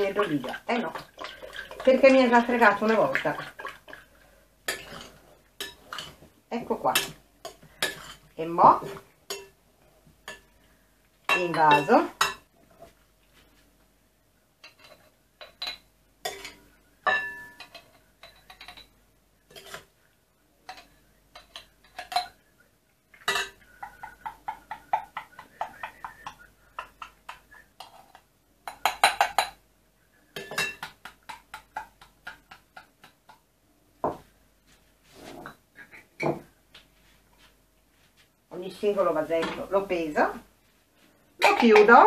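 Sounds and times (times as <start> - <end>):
glass jars clinking: 14.6 - 18.9, 20.7 - 22.4, 23.2 - 26.4, 30.4 - 31.0.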